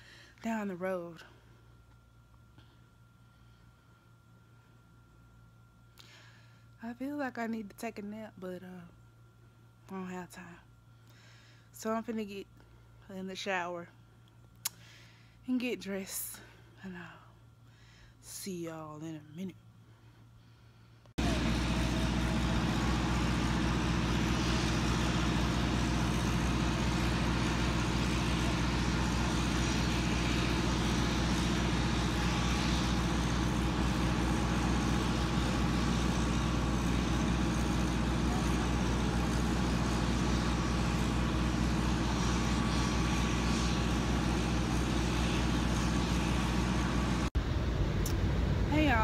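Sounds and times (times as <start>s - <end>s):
aircraft engines droning: 19.2s - 49.0s.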